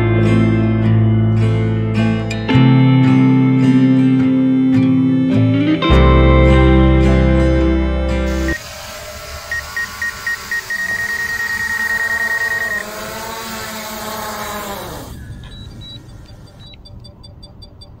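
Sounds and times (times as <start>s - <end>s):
drone propellers whining: 8.2s - 18.0s
high-pitched beeping: 8.3s - 8.6s, 9.4s - 13.4s, 14.1s - 18.0s.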